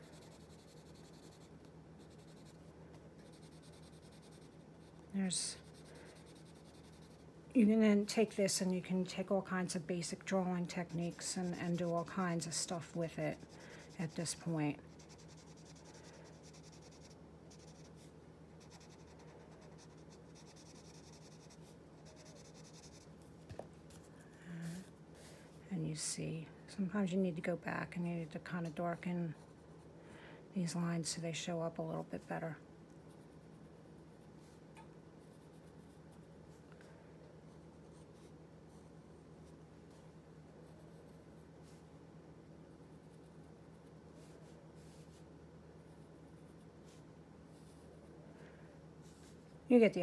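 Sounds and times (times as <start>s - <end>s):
steady low hum: 0.0s - 50.0s
blending stump rubbing on paper: 10.6s - 23.0s.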